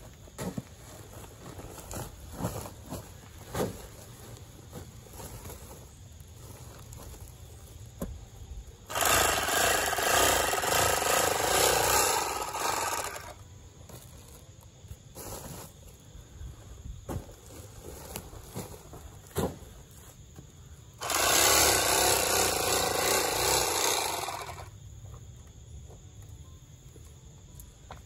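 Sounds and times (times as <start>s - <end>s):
sacks rustling and knocking: 0.0s - 8.3s, 16.8s - 20.4s
electric sewing machine stitching: 8.9s - 13.4s, 21.0s - 24.7s.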